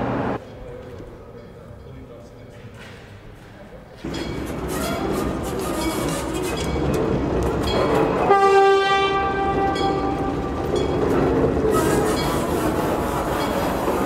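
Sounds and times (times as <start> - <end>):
locomotive rumbling on track: 4.0 - 14.0
locomotive horn blast: 8.0 - 10.7.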